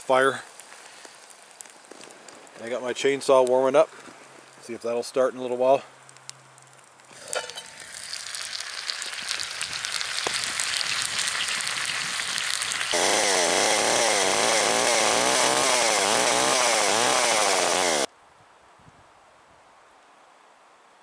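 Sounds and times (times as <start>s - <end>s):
food sizzling and crackling: 0.5s - 4.8s, 6.0s - 18.1s
chainsaw engine revving: 12.9s - 18.1s.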